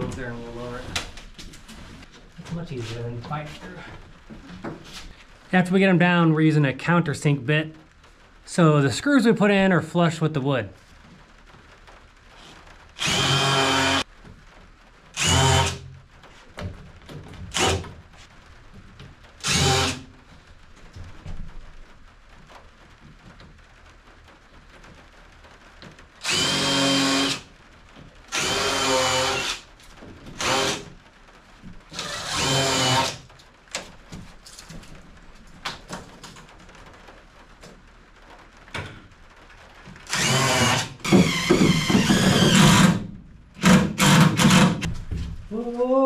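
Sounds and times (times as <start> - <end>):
power drill drilling into plywood: 13.0 - 14.0, 15.2 - 15.8, 17.5 - 17.8, 19.4 - 20.0, 26.2 - 27.4, 28.3 - 29.6, 30.4 - 30.9, 32.0 - 33.2, 40.1 - 44.9.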